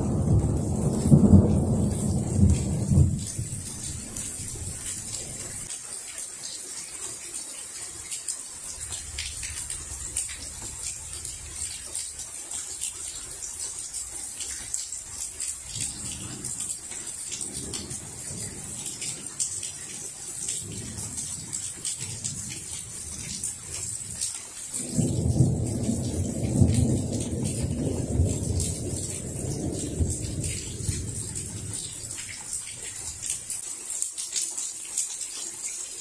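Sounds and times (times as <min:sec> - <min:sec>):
distant thunder rumbling: 0:00.0 - 0:05.7, 0:15.6 - 0:19.7, 0:24.7 - 0:32.4
raindrops ticking close by: 0:00.0 - 0:36.0
steady rain falling: 0:00.0 - 0:36.0.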